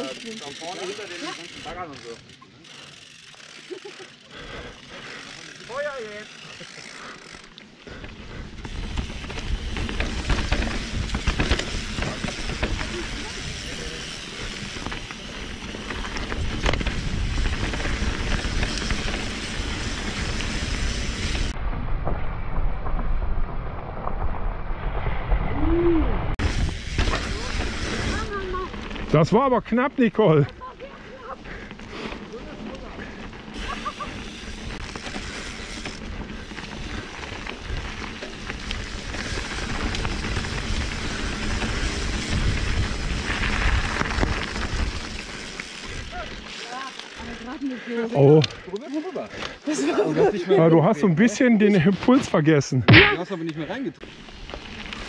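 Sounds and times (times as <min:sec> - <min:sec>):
bike rattling and clicking: 0:00.0 - 0:22.2, 0:26.4 - 0:52.4, 0:53.4 - 0:55.0
knobby tyres rumbling on dirt: 0:00.0 - 0:52.8, 0:53.8 - 0:55.0
wind buffeting microphone: 0:15.9 - 0:23.6, 0:34.3 - 0:45.3.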